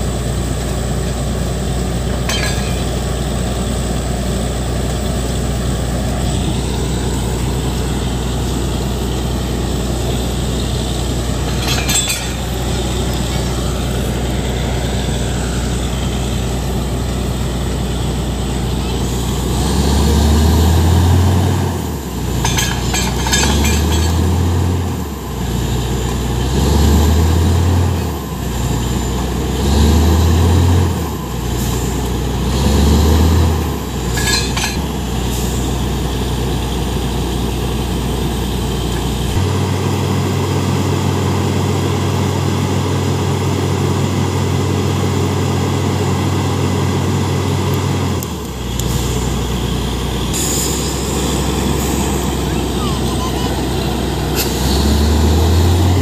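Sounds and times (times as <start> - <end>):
drilling rig droning: 0.0 - 56.0
metal clinks: 2.2 - 3.1, 11.4 - 13.1, 22.4 - 24.3, 34.1 - 34.9.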